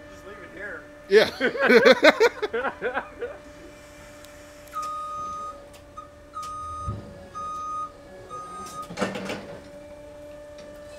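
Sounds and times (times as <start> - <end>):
steady hum: 0.0 - 10.8
forklift backup alarm beeping: 4.6 - 10.9.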